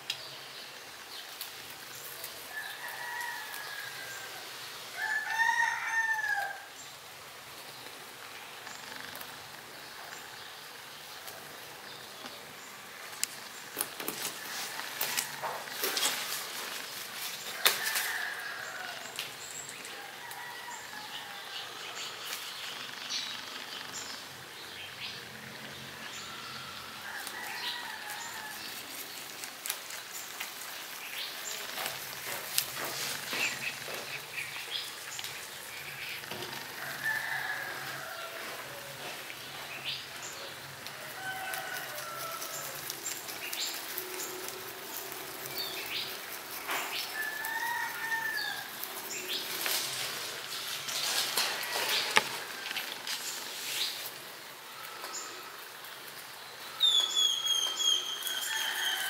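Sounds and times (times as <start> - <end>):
leaf rustling: 0.0 - 59.0
rabbit chewing leaves: 1.0 - 6.5, 7.5 - 24.5, 25.2 - 59.0
bird calls: 30.1 - 40.6, 56.5 - 59.0.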